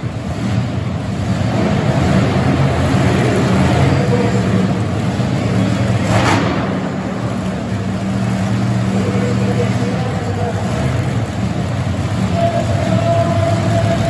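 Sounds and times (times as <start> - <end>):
truck engine running: 0.0 - 14.0.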